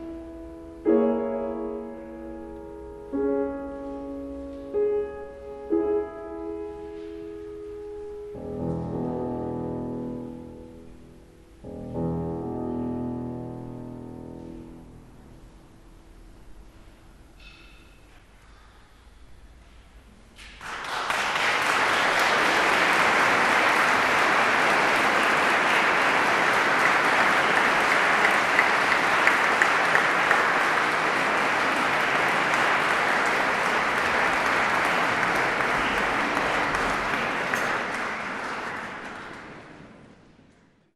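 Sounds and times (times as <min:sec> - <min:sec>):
audience applauding: 0:20.5 - 0:40.1.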